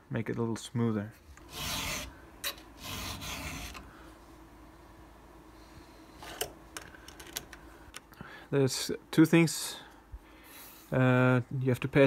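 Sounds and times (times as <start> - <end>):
file rasping on chain tooth: 1.5 - 3.8.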